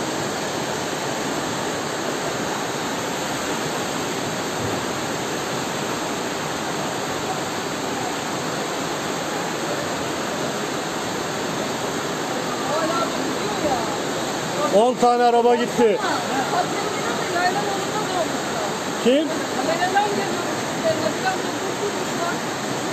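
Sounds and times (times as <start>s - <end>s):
flood water rushing: 0.0s - 22.9s.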